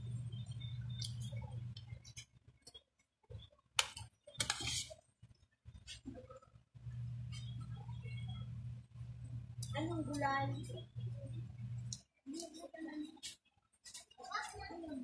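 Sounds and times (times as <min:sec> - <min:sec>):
low steady hum: 0:00.0 - 0:12.5
metal spoon scraping a plate: 0:04.4 - 0:05.0.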